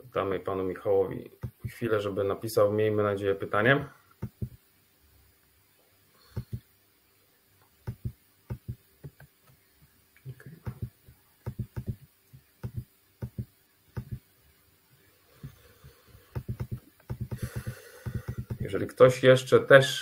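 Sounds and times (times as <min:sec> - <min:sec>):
soft low knocks: 0:04.2 - 0:04.6, 0:07.9 - 0:09.2, 0:10.6 - 0:12.0, 0:12.6 - 0:14.2, 0:16.4 - 0:18.7.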